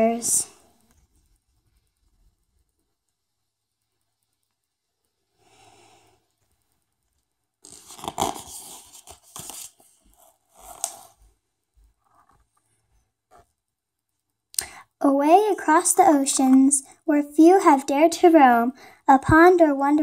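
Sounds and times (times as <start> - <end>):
book pages turning: 7.6 - 11.3.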